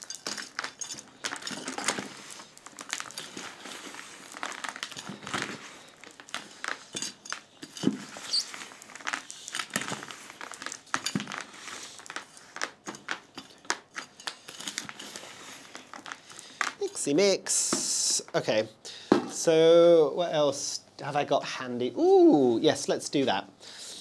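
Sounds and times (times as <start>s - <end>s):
trowel stirring soil in a bucket: 0.0s - 12.8s.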